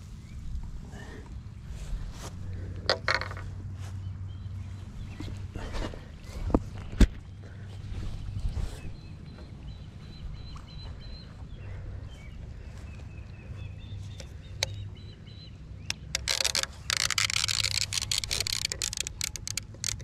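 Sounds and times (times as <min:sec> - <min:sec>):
steady low rumble: 0:00.0 - 0:16.1
fishing gear rustling and clicking: 0:02.2 - 0:03.7, 0:15.8 - 0:20.0.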